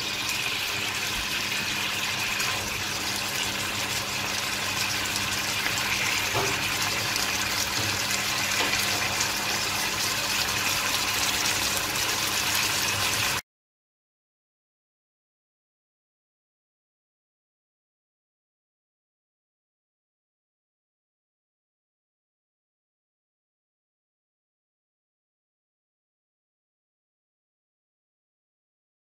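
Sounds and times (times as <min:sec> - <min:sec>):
curry sizzling in a frying pan: 0:00.0 - 0:13.4.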